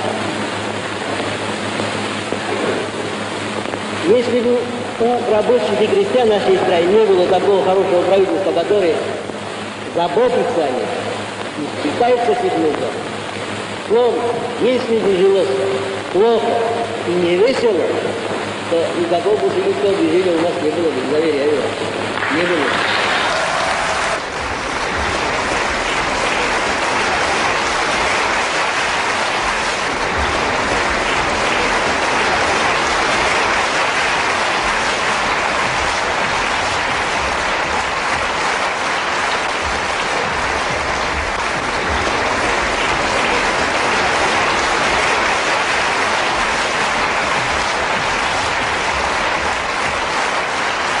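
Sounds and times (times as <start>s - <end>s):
audience applauding: 0.0s - 9.1s, 22.1s - 51.0s.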